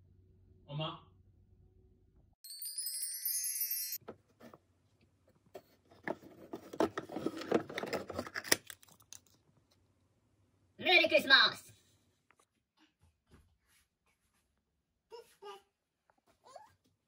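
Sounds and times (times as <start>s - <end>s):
high glittering chime: 2.4s - 4.0s.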